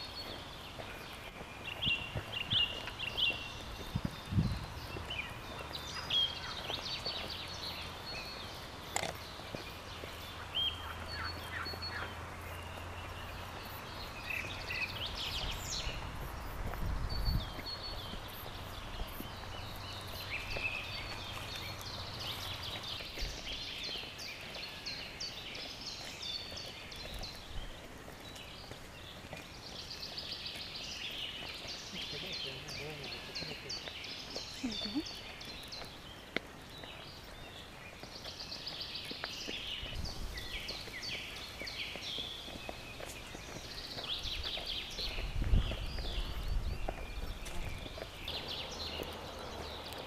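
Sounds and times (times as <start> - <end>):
footsteps on dirt path: 0.0 - 50.0
small birds chirping: 0.0 - 50.0.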